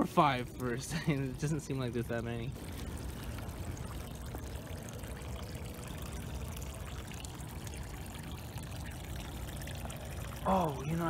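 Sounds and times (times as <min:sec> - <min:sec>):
stream water trickling: 0:00.0 - 0:11.0.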